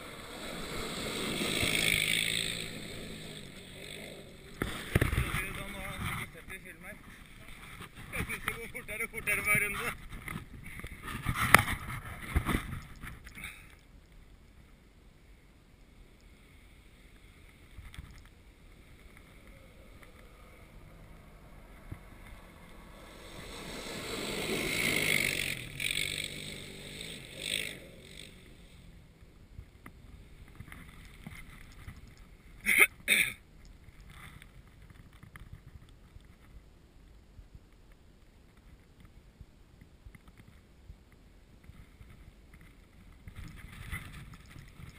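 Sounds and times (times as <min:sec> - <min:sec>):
atv engine driving past: 0:00.0 - 0:06.6, 0:18.6 - 0:29.2.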